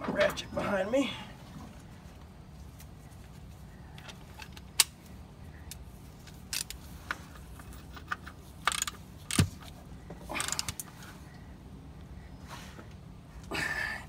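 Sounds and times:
socket ratchet clicking: 8.1 - 9.5.

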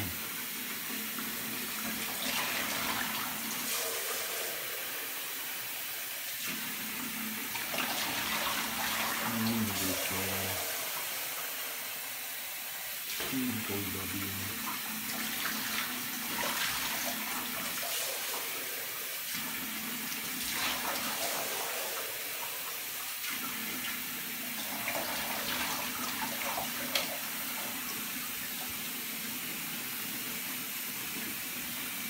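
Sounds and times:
tap running into bathtub: 19.3 - 28.9.

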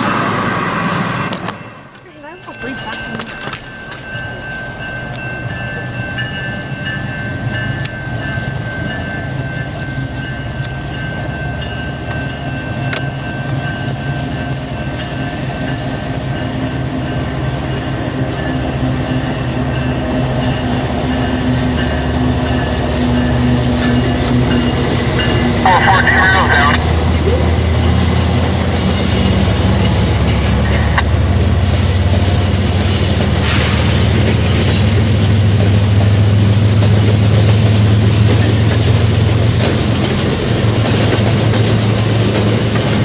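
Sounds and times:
railway crossing bell ringing: 1.5 - 28.0
locomotive engine rumble: 16.6 - 43.0.

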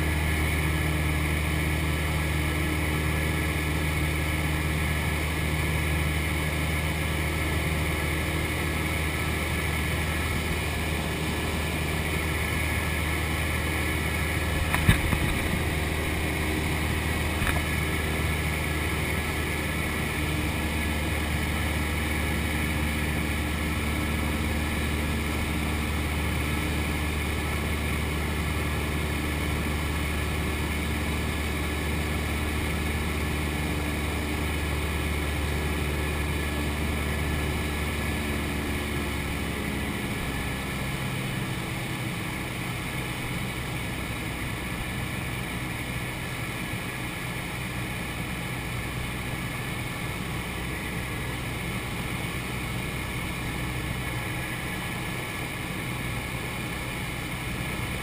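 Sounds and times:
propeller plane engine droning: 0.0 - 58.0.

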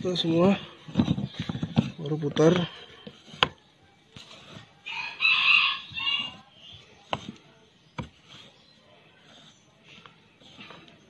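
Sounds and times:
rooster crowing: 4.8 - 6.5.

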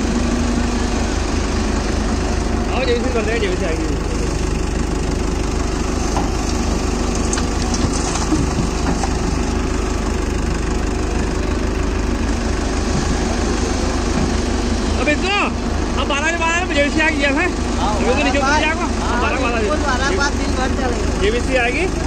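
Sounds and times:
excavator diesel engine running: 0.0 - 22.0
soil dropping into steel trolley: 6.0 - 9.5.

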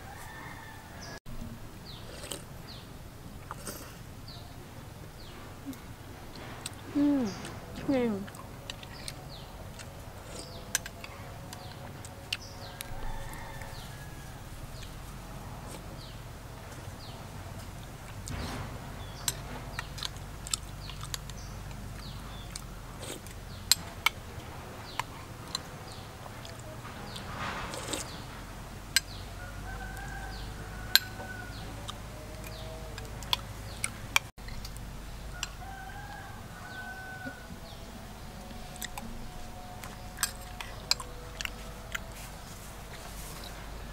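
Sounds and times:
rooster crowing: 0.0 - 1.2, 10.2 - 16.3, 29.0 - 33.9, 35.2 - 43.9
slurping and mouth sounds: 1.9 - 2.5.

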